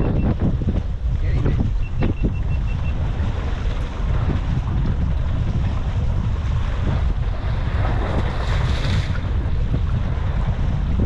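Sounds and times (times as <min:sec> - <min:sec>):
short high beeps: 0:00.0 - 0:00.4, 0:01.8 - 0:03.0
wind buffeting microphone: 0:00.0 - 0:11.0.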